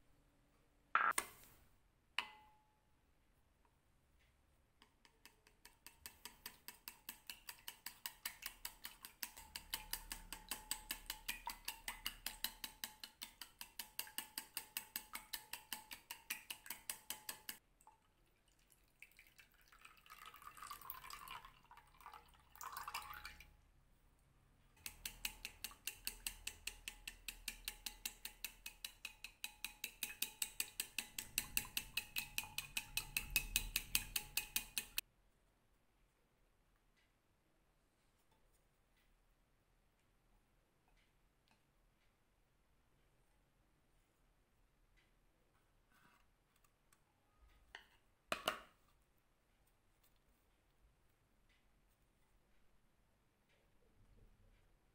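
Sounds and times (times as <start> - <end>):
chopsticks beating eggs in bowl: 4.9 - 17.6, 24.8 - 35.0
milk pouring: 5.9 - 23.6.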